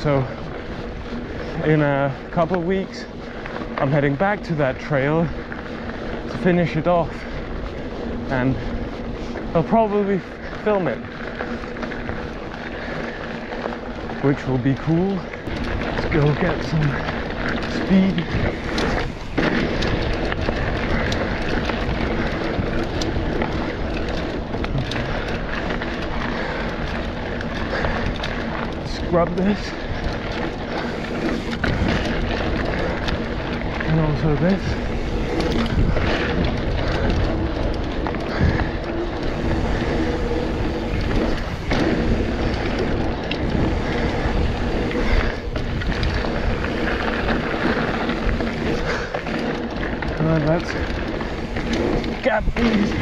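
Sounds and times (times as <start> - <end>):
bike clicks and rattles: 0.0 - 53.0
bike tyres rumbling on dirt: 0.0 - 53.0
wind buffeting microphone: 0.0 - 53.0.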